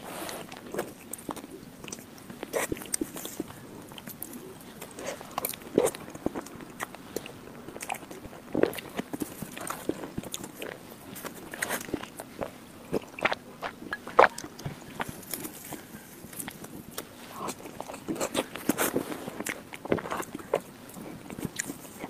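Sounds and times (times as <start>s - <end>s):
chewing and mouth smacks: 0.4s - 22.0s.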